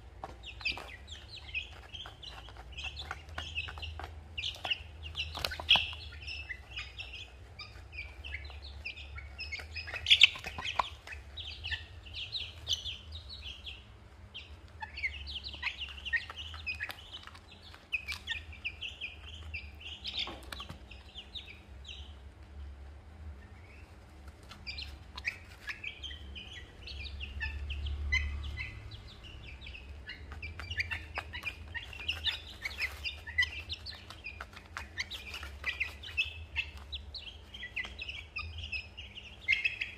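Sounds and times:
beaks pecking plastic dish: 0:00.0 - 0:22.1, 0:28.5 - 0:39.9
chicks and ducklings peeping: 0:00.0 - 0:39.9.

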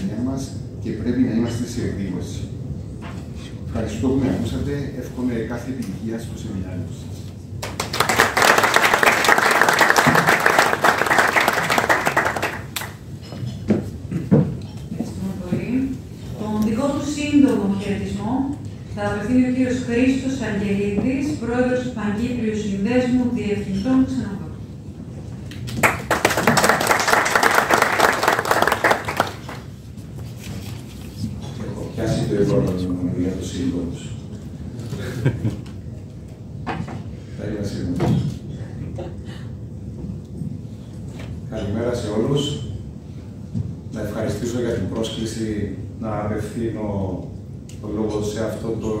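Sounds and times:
audience applauding: 0:07.6 - 0:13.1, 0:25.7 - 0:29.8.

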